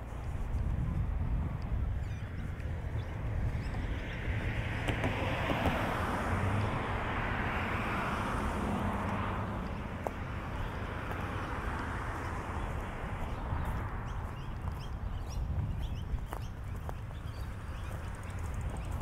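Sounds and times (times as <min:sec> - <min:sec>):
vehicle passing: 0:02.8 - 0:15.0.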